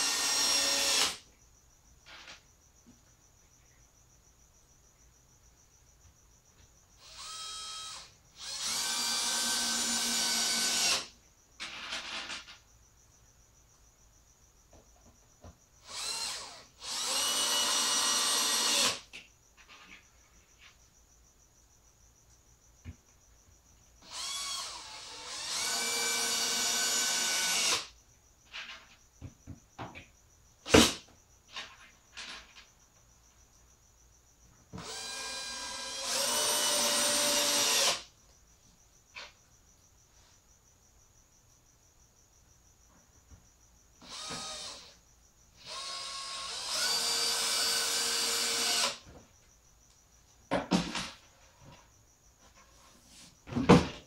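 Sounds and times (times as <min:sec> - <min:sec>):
cordless drill driving screws: 0:00.0 - 0:01.2, 0:07.0 - 0:12.4, 0:15.8 - 0:19.0, 0:24.0 - 0:27.9, 0:34.8 - 0:38.0, 0:44.0 - 0:45.0, 0:45.6 - 0:49.0.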